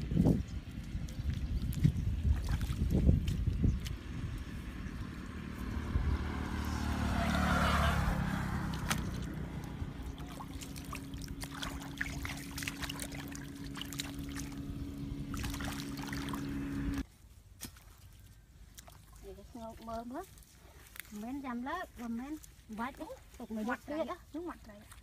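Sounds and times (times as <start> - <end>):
low engine hum: 0.0 - 17.4
hands splashing in muddy water: 0.8 - 5.8, 7.0 - 17.0.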